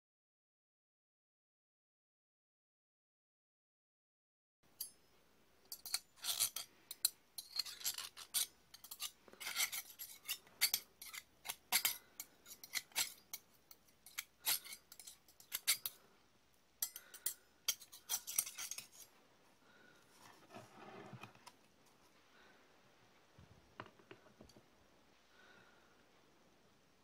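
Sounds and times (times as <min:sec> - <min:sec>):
knife and fork scraping: 0:05.7 - 0:16.0, 0:16.8 - 0:19.1.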